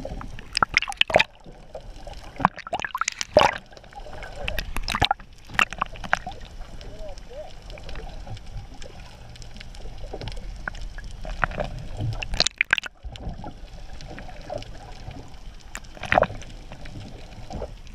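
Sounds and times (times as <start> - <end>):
underwater sloshing and gurgling: 0.0 - 17.9.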